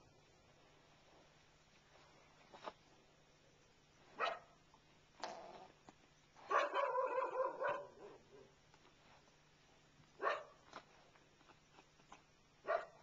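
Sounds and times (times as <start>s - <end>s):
animal barking calls: 6.4s - 8.6s.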